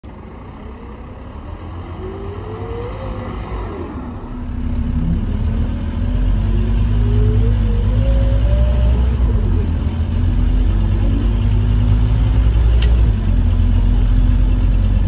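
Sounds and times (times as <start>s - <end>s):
bus engine drone: 0.0s - 15.0s.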